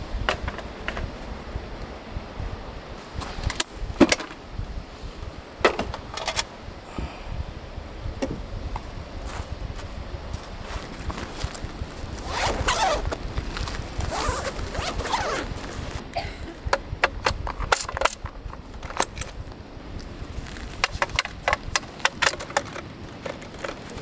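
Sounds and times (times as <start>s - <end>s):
zipper opening: 12.1s - 16.0s.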